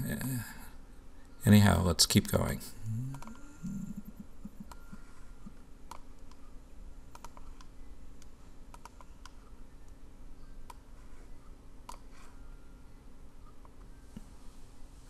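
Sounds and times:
faint steady hum: 0.0 - 15.0
computer mouse clicks: 3.1 - 3.5, 4.6 - 5.0, 5.8 - 6.5, 7.1 - 10.0, 10.6 - 10.9, 11.8 - 12.2.

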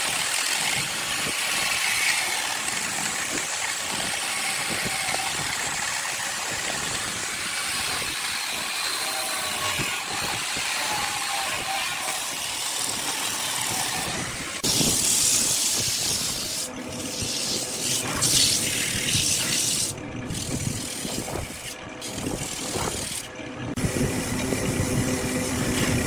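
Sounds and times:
sanding wood on a lathe: 0.0 - 26.0.

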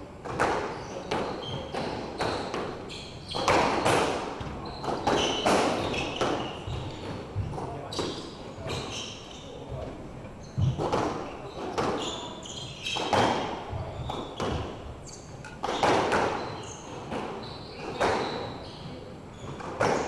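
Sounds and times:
squash ball hits echoing: 0.2 - 8.2, 12.8 - 14.8, 15.4 - 16.5, 19.6 - 20.0
shoes squeaking on hardwood: 0.7 - 20.0.

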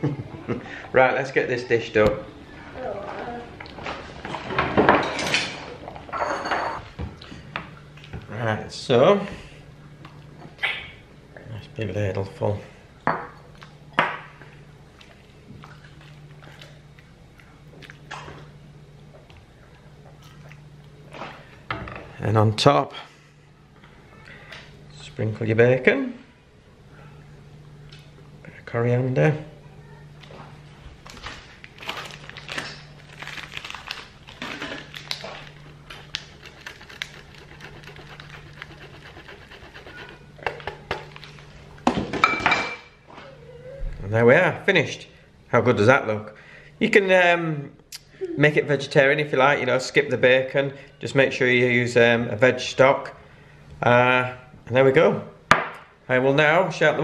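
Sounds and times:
low steady hum: 0.0 - 57.0
cheese grating on metal grater: 36.2 - 40.9.

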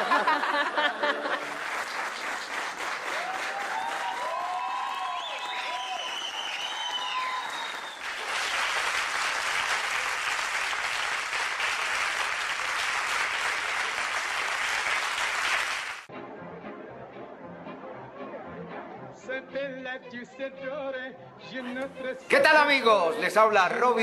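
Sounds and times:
audience applauding: 0.0 - 16.1.

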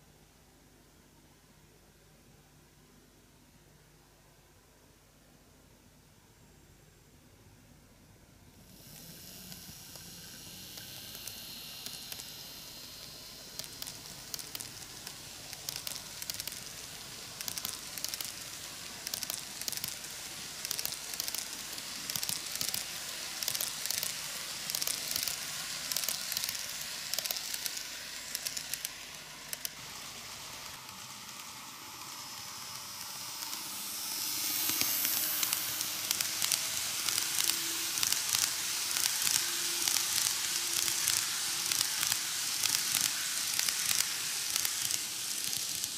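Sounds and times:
model train rolling on track: 8.6 - 45.9
rapid irregular clicking: 8.8 - 29.8, 30.6 - 45.9.

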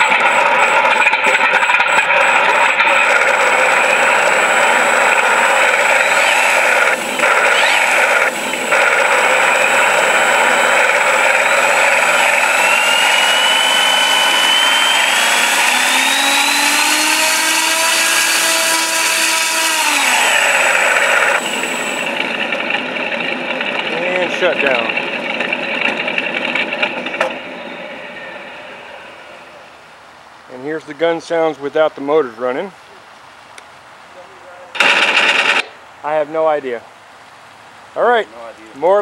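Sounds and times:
simulated aircraft engine: 0.0 - 29.8.

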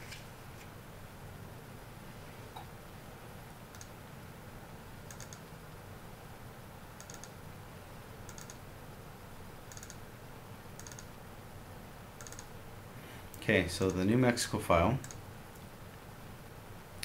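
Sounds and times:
computer mouse clicking: 3.7 - 3.9, 5.1 - 5.5, 7.0 - 7.4, 8.3 - 8.6, 9.6 - 10.0, 10.8 - 11.1, 12.2 - 12.5, 15.0 - 15.7.

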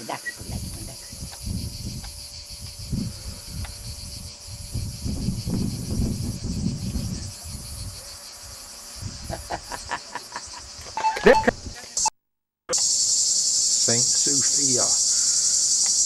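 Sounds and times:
cicadas buzzing: 0.0 - 12.1, 12.7 - 16.0
low rumble on microphone: 0.4 - 8.0.

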